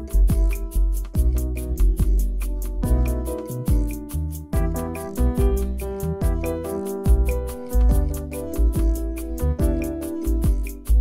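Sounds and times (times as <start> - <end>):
held chords: 0.0 - 11.0
drum hits: 4.6 - 9.0.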